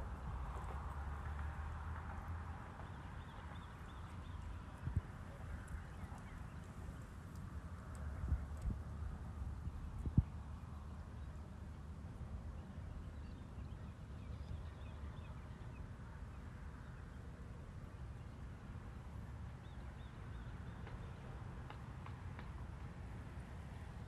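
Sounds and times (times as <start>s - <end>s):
wind rumble on microphone: 0.0s - 16.2s.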